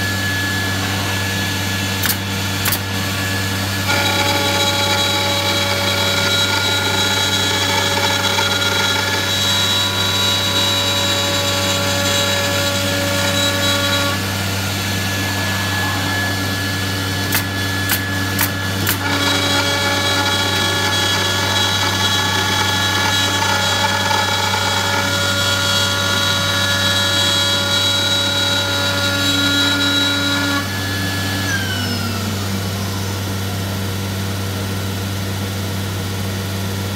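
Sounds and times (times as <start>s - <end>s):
cnc router spindle whine: 0.0s - 36.9s
pneumatic nail gun shots: 2.0s - 3.0s, 17.2s - 19.1s.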